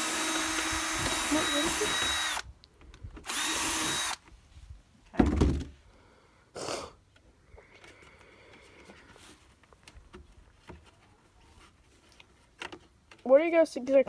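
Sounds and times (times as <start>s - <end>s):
cordless drill drilling plastic: 0.0s - 2.4s, 3.2s - 4.2s
loud thump: 5.2s - 5.7s.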